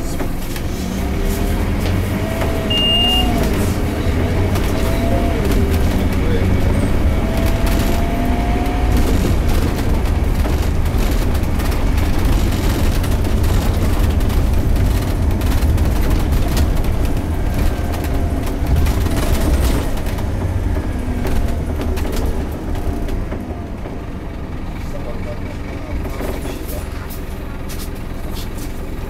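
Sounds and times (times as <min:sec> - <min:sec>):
bus engine droning: 0:00.0 - 0:29.0
bodywork clicks and rattles: 0:03.3 - 0:24.2.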